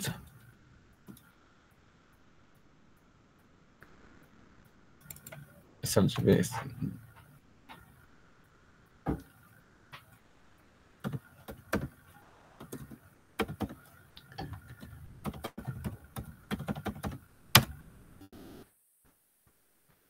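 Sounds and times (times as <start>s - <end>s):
computer keyboard typing: 5.0s - 5.5s, 12.6s - 17.8s.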